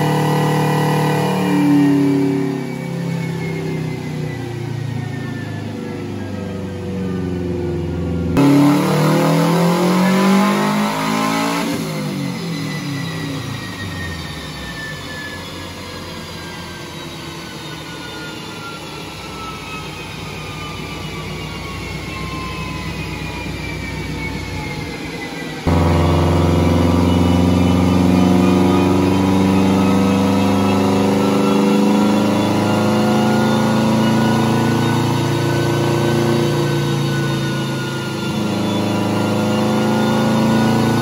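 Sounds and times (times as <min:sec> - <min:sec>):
car engine revving: 0:00.0 - 0:04.4, 0:06.8 - 0:13.8, 0:25.7 - 0:41.0
falling whine of drivetrain: 0:25.6 - 0:41.0.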